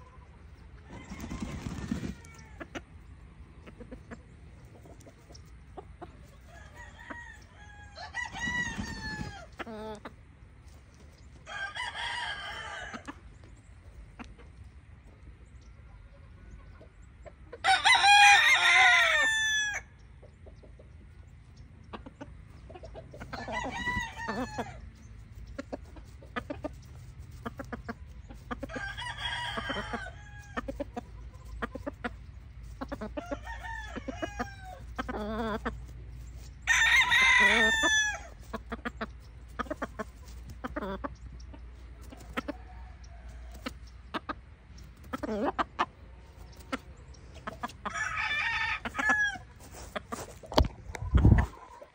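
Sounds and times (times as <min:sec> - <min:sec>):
rooster crowing: 0:00.8 - 0:02.6, 0:06.5 - 0:09.5, 0:11.4 - 0:13.1, 0:17.6 - 0:19.9, 0:23.3 - 0:24.8, 0:28.7 - 0:30.6, 0:33.2 - 0:34.8, 0:36.6 - 0:38.4, 0:47.8 - 0:49.8.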